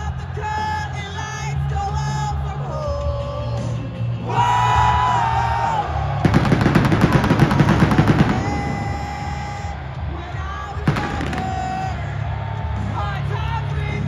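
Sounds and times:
arena entrance music with singing: 0.0 - 14.0
pyrotechnic bangs crackling: 6.2 - 8.6.

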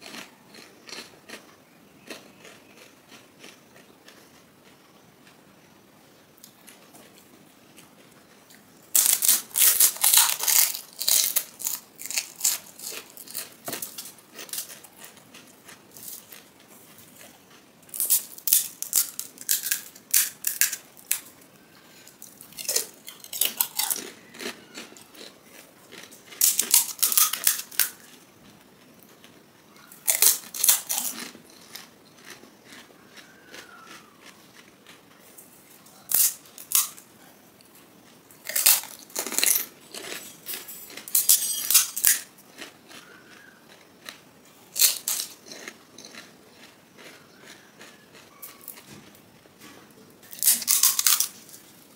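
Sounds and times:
crisp shells cracking and crunching: 8.9 - 28.2, 29.1 - 35.0, 35.9 - 37.0, 38.0 - 49.0, 50.2 - 51.9
quiet chewing: 27.7 - 41.8, 42.4 - 51.9.

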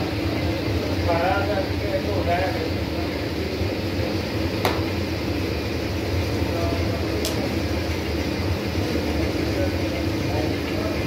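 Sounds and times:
low machinery hum: 0.0 - 11.0.

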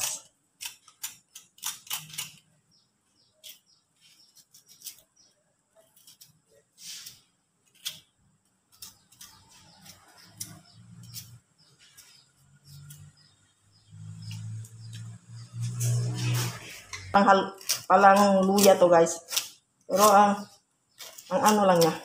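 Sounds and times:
knife scraping root skin: 0.0 - 2.6, 3.2 - 8.1, 8.7 - 13.2, 14.1 - 22.0.

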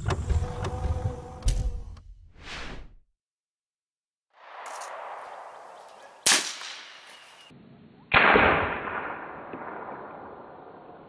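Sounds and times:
rifle shot crack: 4.4 - 7.3, 8.1 - 10.6
slowed gunshot boom: 8.1 - 11.0.

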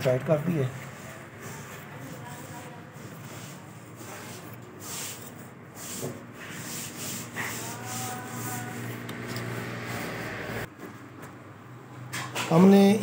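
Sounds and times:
metal scraping and rubbing: 0.6 - 10.7.

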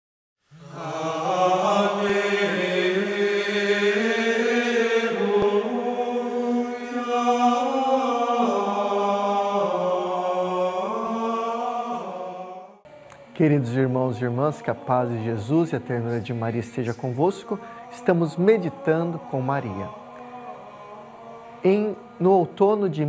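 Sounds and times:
chanted voices holding long notes: 0.5 - 23.0.

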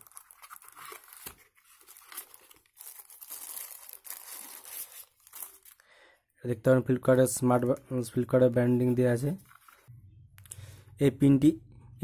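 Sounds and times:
packaging rustling and crinkling: 0.0 - 5.8.

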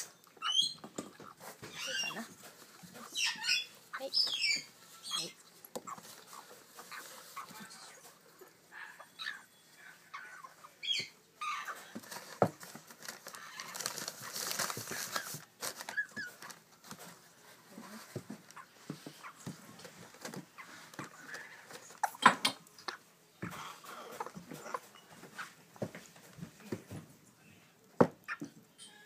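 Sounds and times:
parrot chicks chirping: 0.0 - 25.7
rustling scratchy noise: 11.7 - 22.0.

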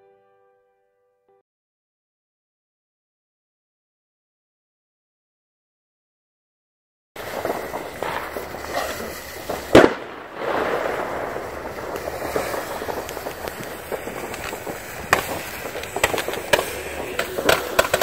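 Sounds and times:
crackling firework pops: 7.2 - 18.0
firework bang: 7.2 - 18.0
hissing spray of sparks: 7.2 - 18.0.

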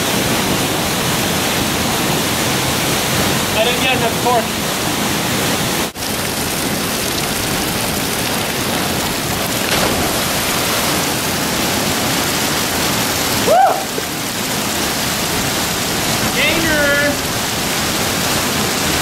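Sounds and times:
river water pouring over rocks: 0.1 - 19.0
person shouting: 13.4 - 14.0.

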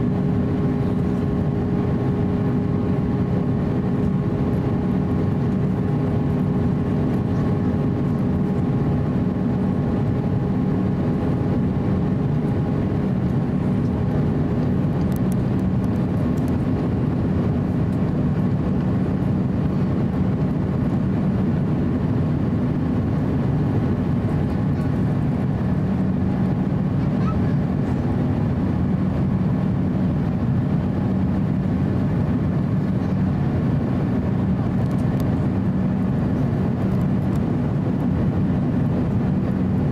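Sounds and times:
airplane cabin engine rumble: 0.0 - 39.9.

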